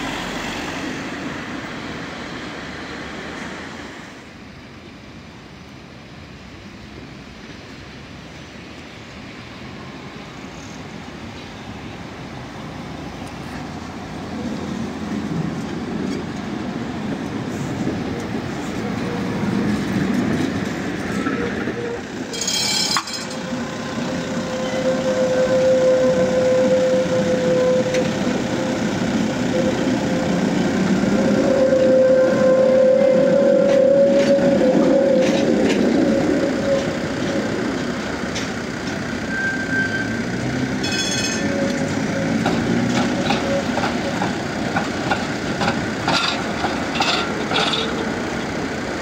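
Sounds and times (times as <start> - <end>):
tram rumbling on rails: 0.0 - 49.0
high-pitched ring: 22.3 - 23.5, 40.8 - 41.6.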